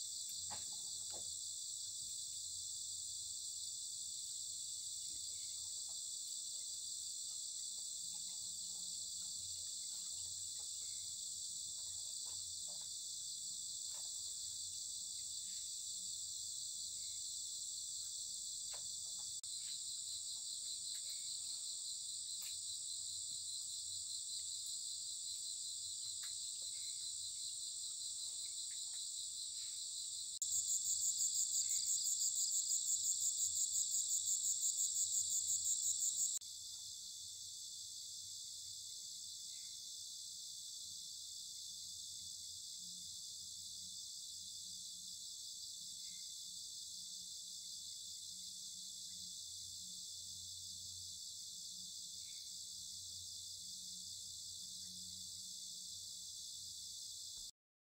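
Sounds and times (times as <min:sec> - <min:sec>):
insects chirring: 0:00.0 - 0:57.5
loud pulsing insect call: 0:13.0 - 0:57.5.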